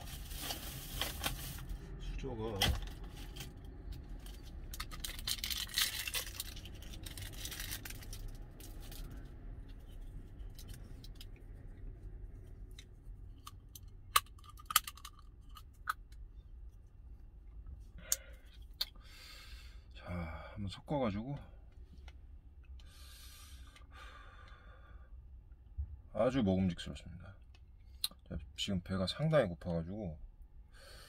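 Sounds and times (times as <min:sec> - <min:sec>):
plastic wrapper crinkling and tearing: 0:00.0 - 0:01.8, 0:02.8 - 0:09.2.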